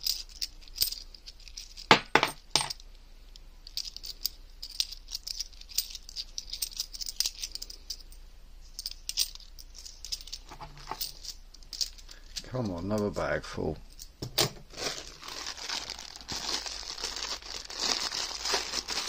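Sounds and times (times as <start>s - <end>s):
coins clinking in fingers: 0.0s - 2.8s, 3.7s - 8.1s, 8.7s - 12.2s.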